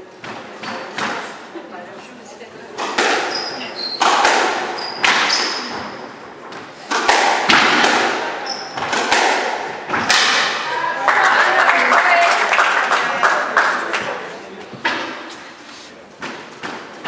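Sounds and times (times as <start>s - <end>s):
squash ball hits echoing: 0.2s - 1.4s, 2.7s - 10.7s, 16.2s - 17.0s
shoes squeaking on wooden floor: 3.2s - 6.9s, 8.4s - 9.0s.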